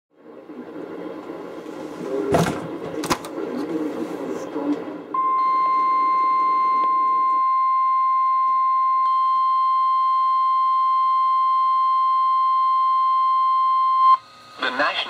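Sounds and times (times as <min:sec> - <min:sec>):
steady alarm tone: 0:05.1 - 0:14.3.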